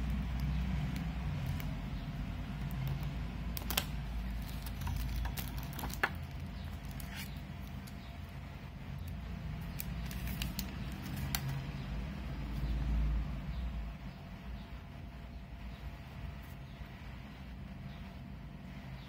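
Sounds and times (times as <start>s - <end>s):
plastic wrapping rustling: 3.4s - 8.0s, 9.6s - 11.7s.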